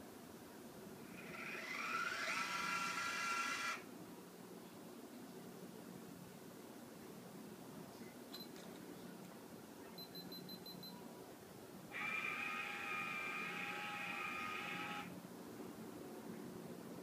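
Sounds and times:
motor whining: 0:01.1 - 0:03.8, 0:11.9 - 0:15.1
short high beeps: 0:10.0 - 0:11.0.

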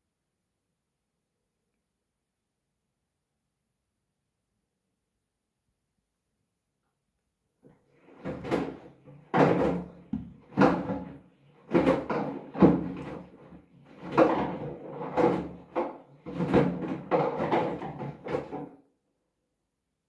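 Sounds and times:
water sloshing and soft thuds: 0:08.0 - 0:18.6.

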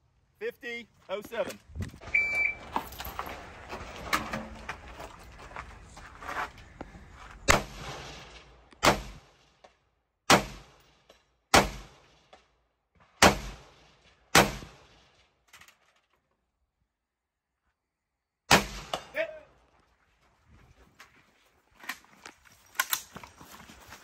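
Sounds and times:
rifle shots with echo: 0:07.5 - 0:09.4, 0:10.3 - 0:12.3, 0:13.2 - 0:15.1, 0:18.5 - 0:19.1.

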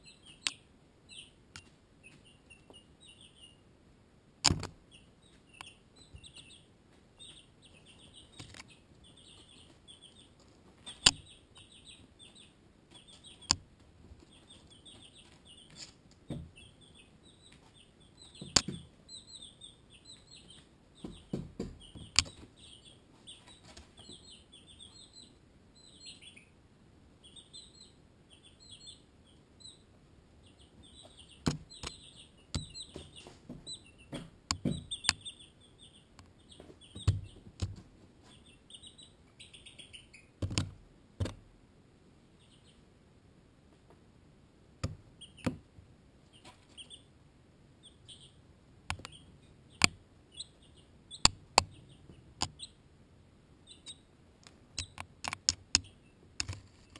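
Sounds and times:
chicks peeping: 0:00.0 - 0:03.8, 0:04.4 - 0:41.4, 0:42.2 - 0:42.9, 0:44.8 - 0:56.9
chicks pecking at camera: 0:04.4 - 0:25.3, 0:30.4 - 0:41.5, 0:47.8 - 0:52.8, 0:53.7 - 0:56.9.

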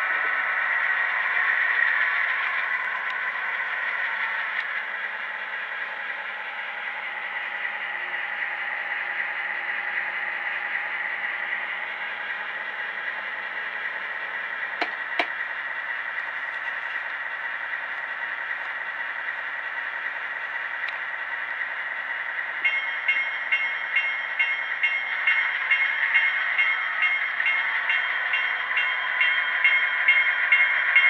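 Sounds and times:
diesel engine sound through small speaker: 0:00.0 - 0:22.7.

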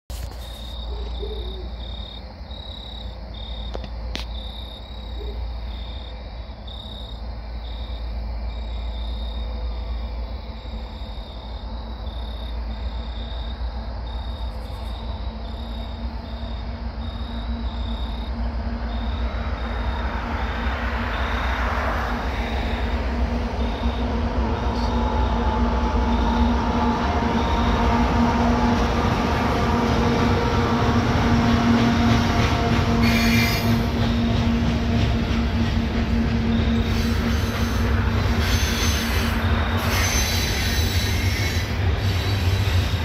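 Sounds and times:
insect chirping: 0:00.1 - 0:28.2, 0:36.5 - 0:43.0
bird hooting faintly: 0:00.9 - 0:01.8
car passing: 0:18.9 - 0:31.8.

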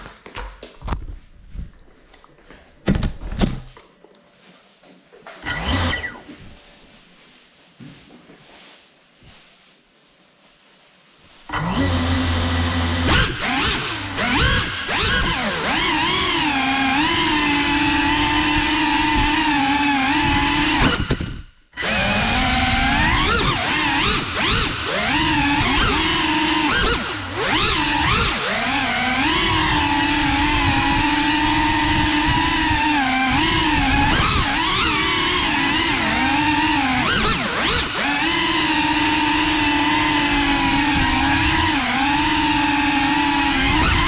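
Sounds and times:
drone motor whine: 0:05.4 - 0:06.4, 0:11.5 - 0:44.0.

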